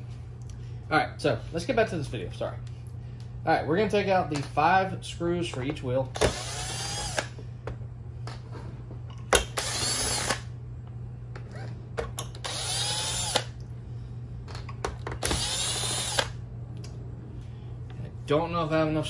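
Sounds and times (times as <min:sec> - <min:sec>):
cordless drill running: 0:06.2 - 0:07.3, 0:09.4 - 0:10.5, 0:12.3 - 0:13.6, 0:15.2 - 0:16.4.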